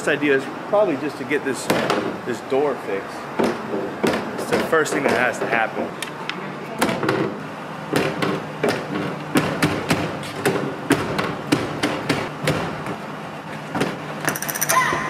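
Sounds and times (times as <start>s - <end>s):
sharp knocks and thuds: 1.7s - 2.2s, 3.4s - 5.6s, 6.8s - 13.1s, 13.7s - 14.1s.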